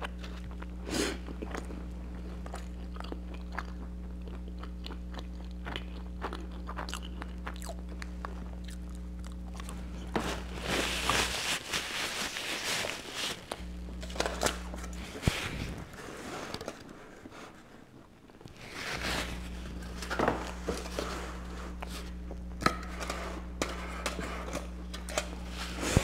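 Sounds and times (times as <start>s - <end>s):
paper napkin rustling: 10.0s - 17.8s, 18.5s - 22.2s, 25.4s - 26.0s.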